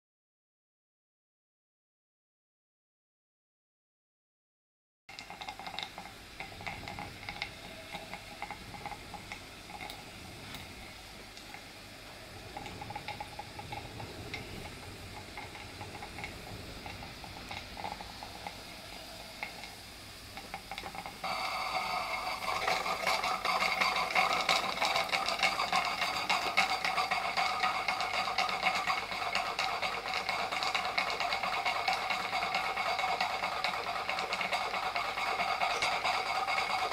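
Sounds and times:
boiler sizzling and ticking: 5.1 - 36.9
gas burner hissing: 5.1 - 36.9
rapid clicking: 12.3 - 36.9.

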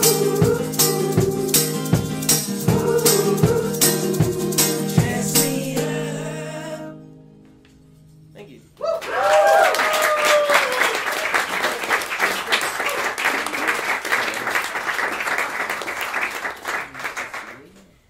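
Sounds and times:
person whooping: 8.8 - 11.4
audience applauding and cheering: 8.8 - 17.8.

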